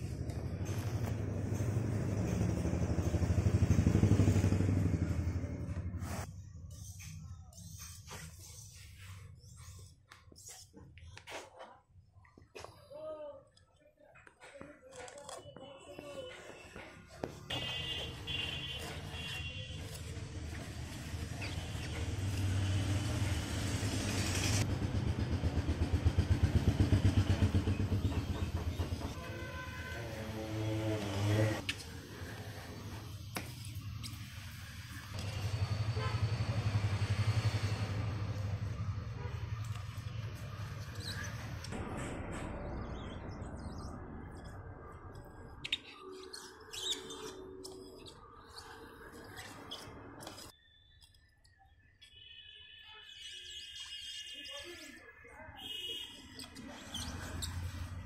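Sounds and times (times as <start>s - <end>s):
engine running and pulsing: 0.0s - 6.3s, 20.3s - 29.3s, 34.8s - 45.4s
small birds chirping: 42.7s - 58.0s.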